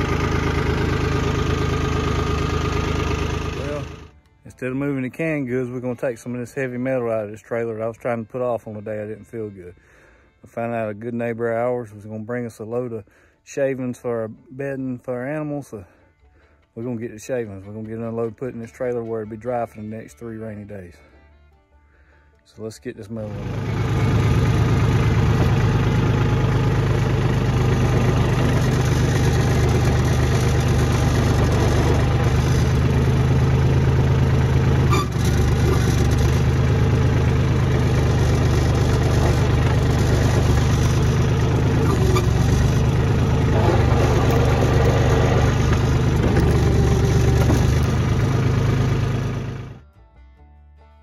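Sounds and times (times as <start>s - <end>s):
tractor diesel engine running: 0.0s - 9.5s, 23.1s - 49.8s.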